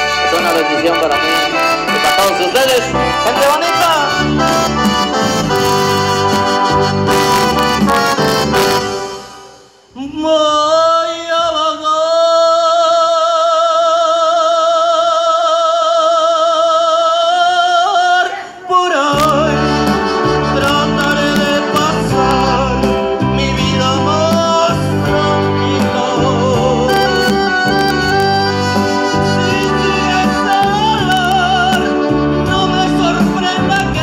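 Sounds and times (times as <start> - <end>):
band with bass and percussion: 0.0 - 10.1, 19.1 - 34.0
man singing with vibrato: 0.0 - 34.0.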